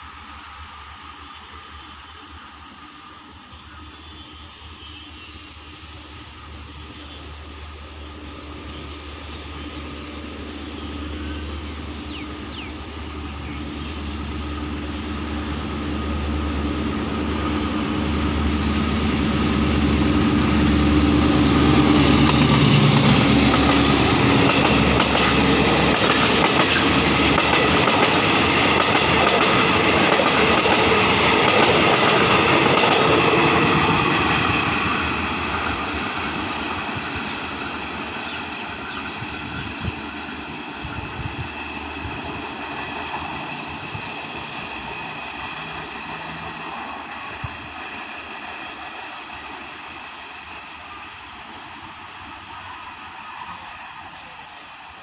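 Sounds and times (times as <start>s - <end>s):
diesel locomotive engine drone: 0.0s - 55.0s
train wheels clattering over rails: 21.6s - 50.0s.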